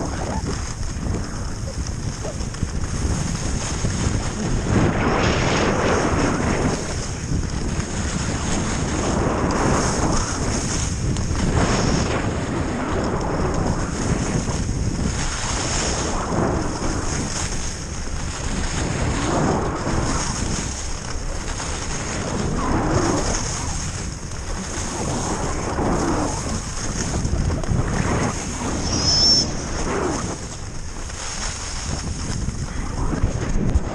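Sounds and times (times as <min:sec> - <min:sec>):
skis scraping on packed snow: 0:00.0 - 0:33.9
wind rushing over microphone: 0:00.0 - 0:33.9
brief high squeak: 0:28.8 - 0:29.7.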